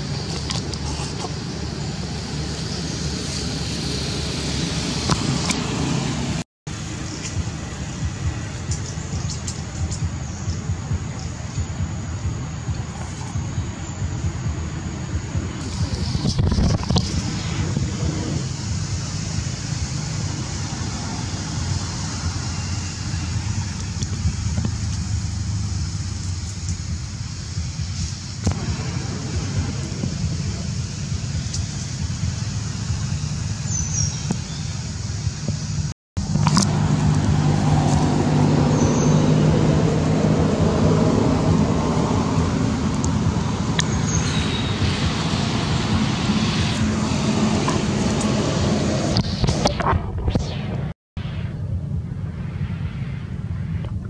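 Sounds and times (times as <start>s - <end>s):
high hiss: 0.0s - 54.0s
low outdoor rumble: 0.0s - 54.0s.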